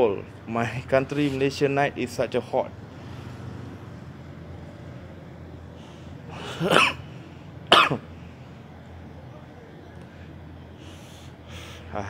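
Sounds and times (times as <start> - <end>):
steady low hum: 0.0 - 12.0
man coughing: 6.3 - 7.1, 7.7 - 8.1.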